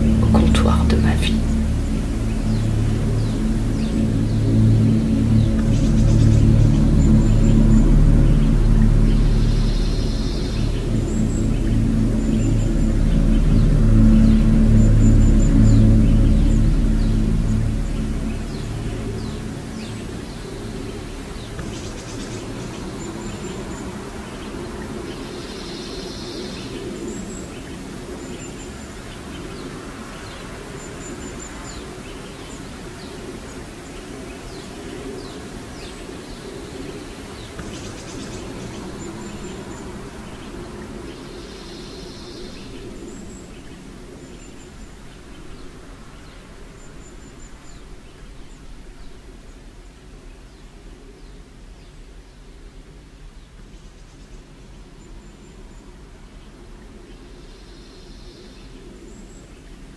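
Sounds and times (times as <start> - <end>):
steady low hum: 0.0 - 26.1, 36.2 - 49.4.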